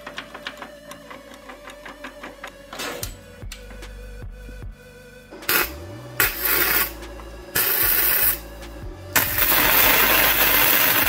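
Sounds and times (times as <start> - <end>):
electric arc welding crackling: 5.5 - 8.5, 9.2 - 11.0.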